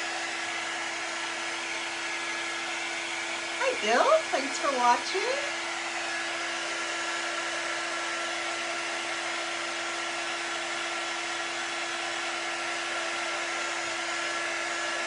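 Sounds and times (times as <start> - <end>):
heat tool blowing with a hum: 0.0 - 15.0.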